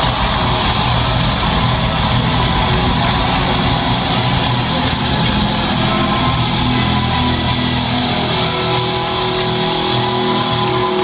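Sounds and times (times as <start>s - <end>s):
loud rock music: 0.0s - 11.0s.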